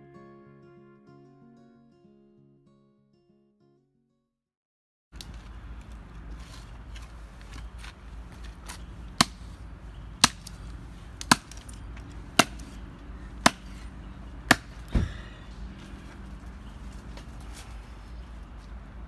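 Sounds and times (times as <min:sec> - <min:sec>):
hatchet chopping log: 0:08.6 - 0:09.6, 0:10.2 - 0:15.2.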